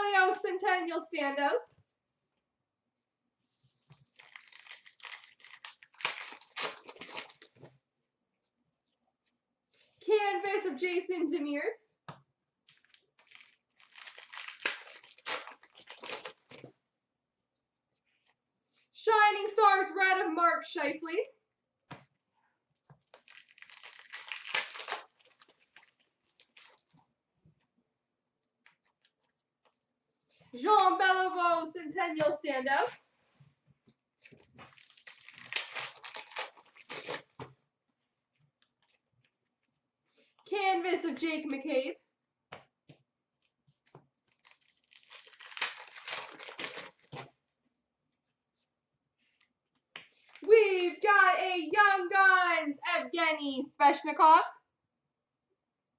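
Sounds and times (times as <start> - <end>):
plastic wrapper crinkling: 3.8 - 7.6, 12.7 - 16.7, 22.7 - 27.0, 34.2 - 37.5, 43.4 - 47.3.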